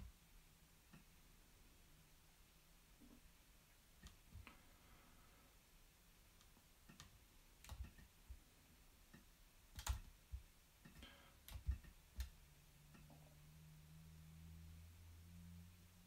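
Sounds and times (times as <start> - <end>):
faint low hum: 0.0 - 16.0
mouse and keyboard clicks: 6.4 - 8.1, 9.7 - 10.1, 10.8 - 12.4.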